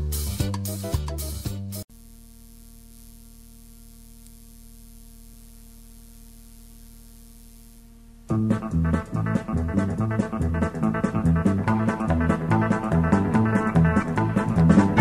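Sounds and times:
electrical hum with hiss: 0:01.8 - 0:15.0
background music: 0:08.3 - 0:15.0.

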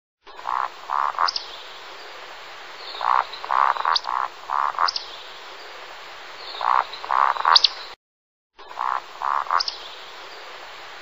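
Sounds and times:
steady hiss: 0:00.3 - 0:08.0, 0:08.6 - 0:11.0
animal calls: 0:00.4 - 0:01.4, 0:08.7 - 0:09.7.

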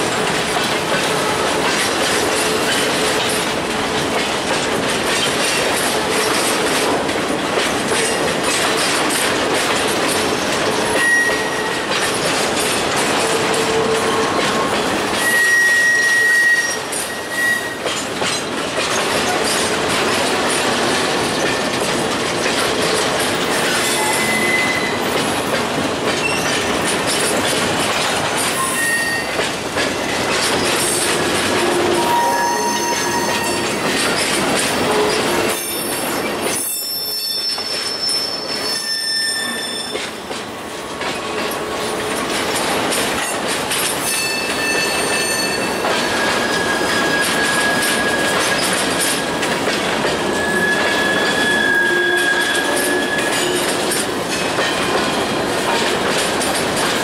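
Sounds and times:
freight train cars rolling: 0:00.0 - 0:57.0
high wheel squeals: 0:11.0 - 0:11.8, 0:15.1 - 0:17.8, 0:23.7 - 0:25.0, 0:28.6 - 0:29.4, 0:31.7 - 0:33.8, 0:34.9 - 0:40.1, 0:44.0 - 0:48.7, 0:50.3 - 0:53.6.

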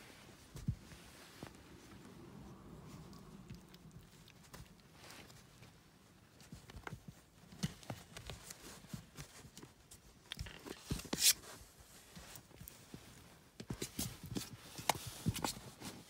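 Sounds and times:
puppies scratching and rustling: 0:00.0 - 0:16.0.

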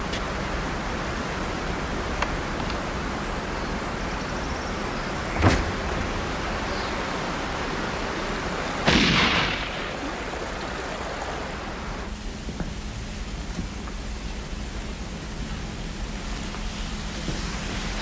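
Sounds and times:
background hiss: 0:00.0 - 0:18.0
loud crack: 0:08.8 - 0:11.7
sharp bang: 0:08.9 - 0:10.1.

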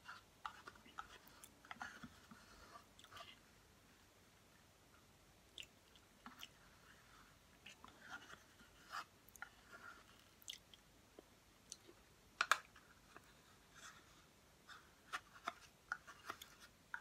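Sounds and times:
soft mouth smacks eating: 0:10.4 - 0:12.0.

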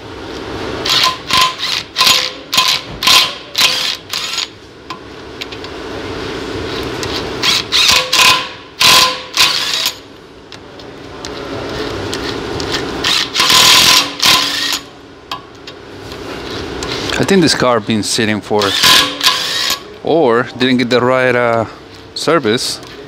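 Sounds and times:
steady low hum: 0:00.0 - 0:23.0
pneumatic tool hissing bursts: 0:00.8 - 0:04.5, 0:07.4 - 0:10.0, 0:13.0 - 0:14.9, 0:18.6 - 0:19.8.

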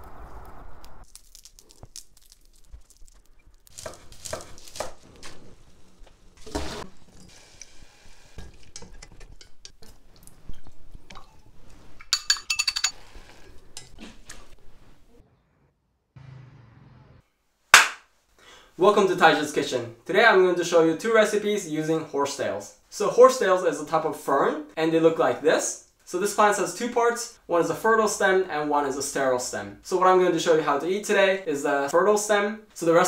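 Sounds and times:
utensils scraping a saucepan: 0:03.8 - 0:14.0
metal clinks: 0:12.1 - 0:13.0.

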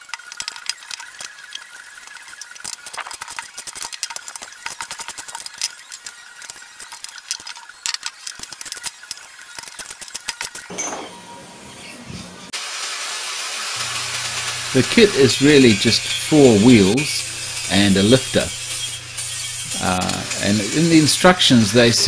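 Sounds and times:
spanners clicking on bolts: 0:00.0 - 0:11.0.

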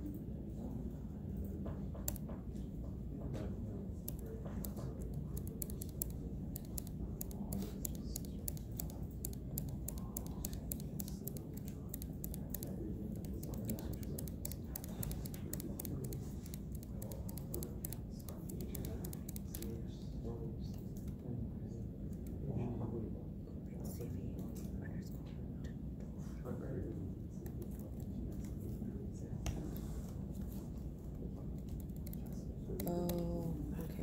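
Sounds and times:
low room hum: 0:00.0 - 0:34.0
computer keyboard typing: 0:04.0 - 0:19.9, 0:31.4 - 0:34.0.

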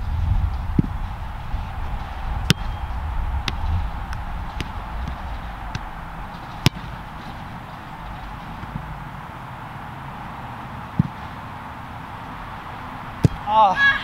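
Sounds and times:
wind rumble on microphone: 0:00.0 - 0:07.2
soccer ball kicks: 0:00.2 - 0:07.4, 0:10.9 - 0:11.2, 0:13.2 - 0:13.5.

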